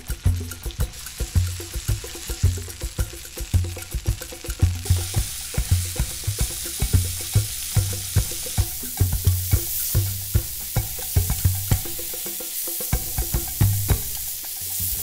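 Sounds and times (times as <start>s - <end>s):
background music with low beat: 0.0s - 15.0s
meat sizzling in a frying pan: 0.0s - 15.0s.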